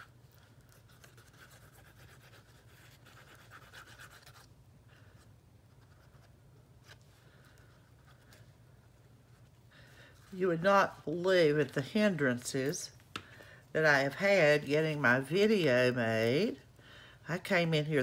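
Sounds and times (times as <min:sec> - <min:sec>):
glue applicator scratching on card: 0:00.0 - 0:04.6.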